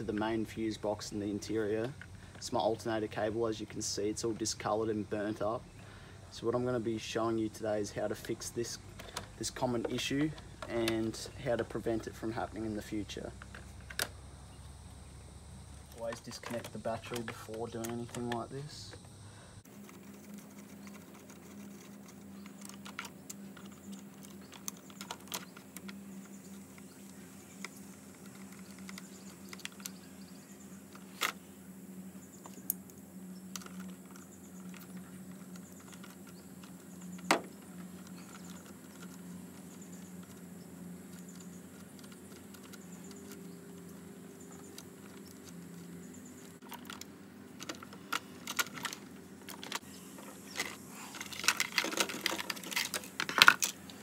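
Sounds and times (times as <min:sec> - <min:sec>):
steady low hum: 0:00.0 - 0:54.0
plastic covers clicking: 0:32.4 - 0:54.0.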